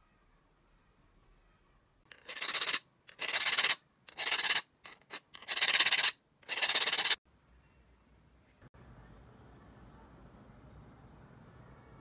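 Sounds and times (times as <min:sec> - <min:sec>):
metal file rasping on steel: 0:02.1 - 0:07.2.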